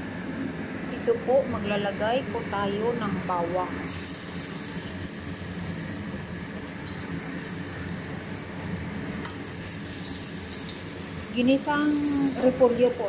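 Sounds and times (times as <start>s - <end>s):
garlic sizzling in hot oil: 3.8s - 13.0s.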